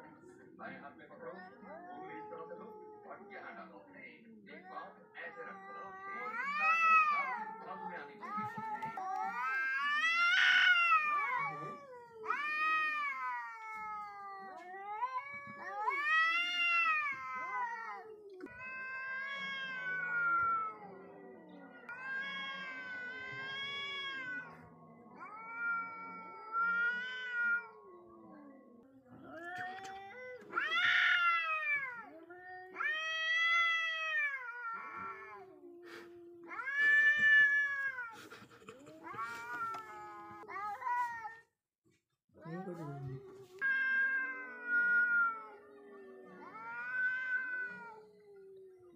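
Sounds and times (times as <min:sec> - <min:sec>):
cats yowling: 0:01.1 - 0:03.7, 0:04.4 - 0:41.4, 0:43.2 - 0:48.9
low moaning cat call: 0:43.1 - 0:48.9.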